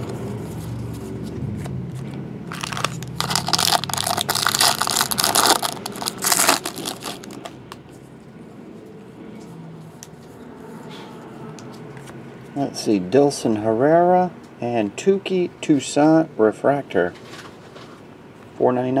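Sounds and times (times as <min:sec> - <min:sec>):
foil wrapper tearing and crinkling: 0:02.5 - 0:07.6.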